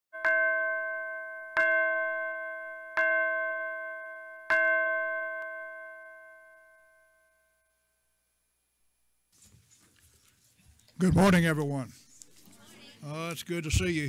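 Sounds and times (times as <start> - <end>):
bell chime ringing: 0.2 - 8.0.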